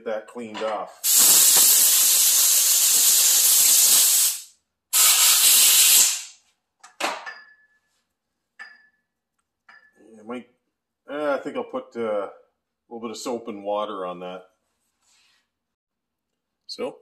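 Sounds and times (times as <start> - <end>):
compressed air hissing: 1.0 - 6.4
short air puffs: 1.0 - 6.4.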